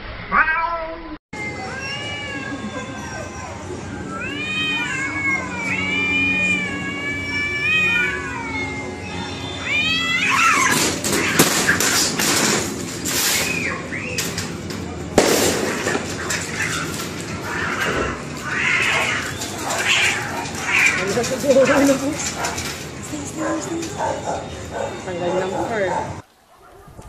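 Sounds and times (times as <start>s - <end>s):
cats yowling and screeching: 0.3s - 12.2s, 15.7s - 22.7s.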